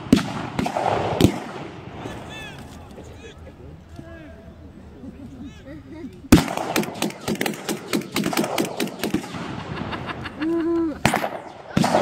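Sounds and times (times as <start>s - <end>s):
blank gunfire shots: 0.0s - 1.8s, 6.3s - 9.8s, 11.0s - 12.0s.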